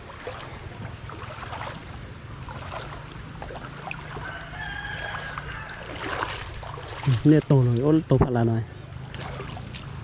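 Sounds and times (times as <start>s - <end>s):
rooster crowing: 4.2s - 6.2s.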